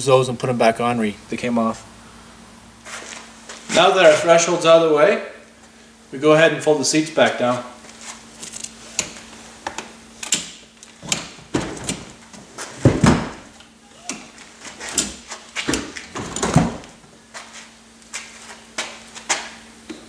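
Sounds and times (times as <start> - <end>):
car seat clunks and thumps: 11.4 - 13.5.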